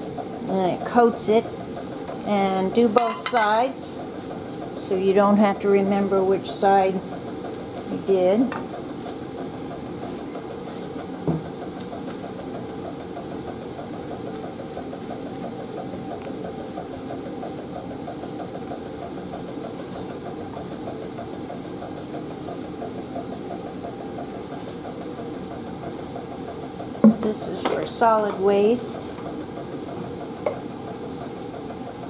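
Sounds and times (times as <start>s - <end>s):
lab equipment humming: 0.0s - 32.0s.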